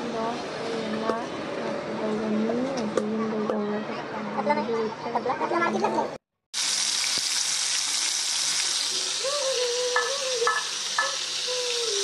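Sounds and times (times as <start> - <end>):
fish frying in hot oil: 6.6 - 12.0.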